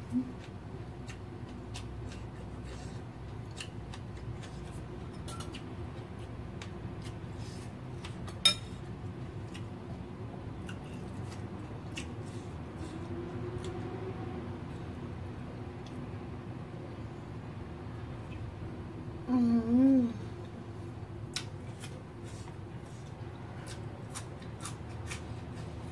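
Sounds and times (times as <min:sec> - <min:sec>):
soft eating and chewing clicks: 0:00.0 - 0:10.0, 0:10.6 - 0:13.9, 0:15.7 - 0:16.1, 0:21.3 - 0:25.7
steady low hum: 0:00.0 - 0:25.9.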